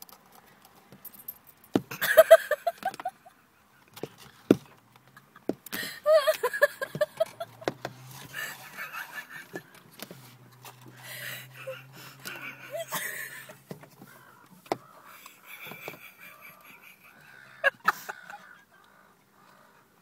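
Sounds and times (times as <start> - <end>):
gulls yelping: 11.0 - 19.9.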